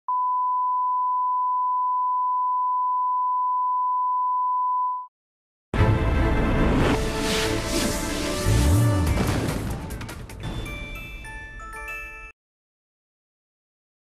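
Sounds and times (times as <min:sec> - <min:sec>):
steady test tone beep: 0:00.1 - 0:05.1
loud music: 0:05.8 - 0:10.9.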